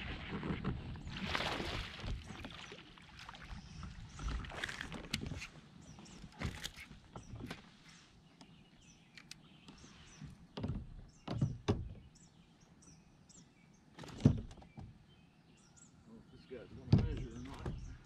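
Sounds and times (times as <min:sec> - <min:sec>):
small birds chirping: 0:02.2 - 0:18.0.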